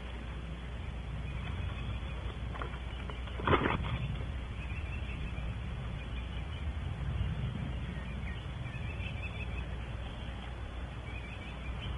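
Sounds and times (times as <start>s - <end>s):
background hiss with low rumble: 0.0s - 11.9s.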